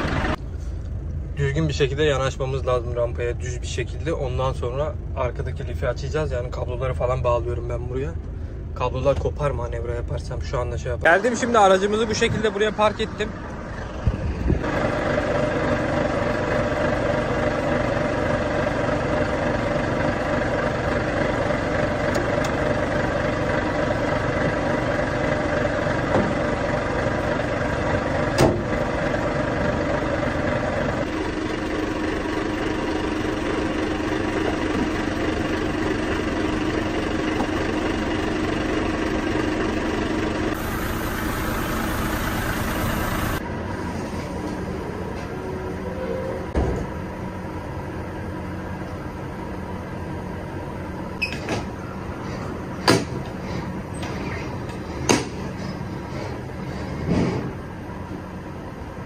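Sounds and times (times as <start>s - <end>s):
diesel truck engine idling: 0.0s - 7.0s, 9.9s - 43.7s.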